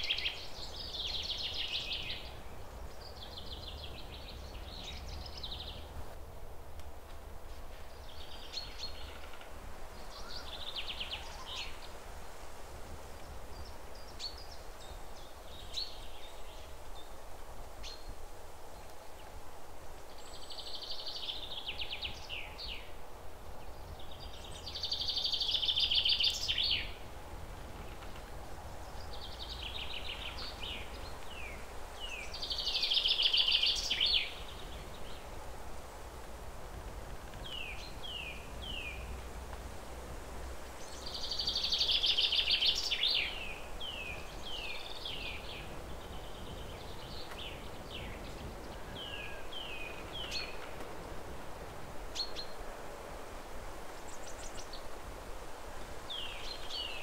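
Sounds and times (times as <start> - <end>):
small birds chirping: 0.0 - 6.0, 23.6 - 27.0, 27.6 - 35.4, 37.2 - 39.3, 40.8 - 51.0, 56.1 - 57.0.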